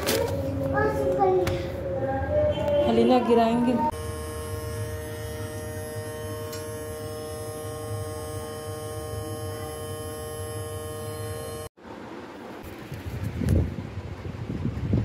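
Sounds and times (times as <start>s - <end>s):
electrical hum: 3.8s - 11.7s
high whine: 3.9s - 11.7s.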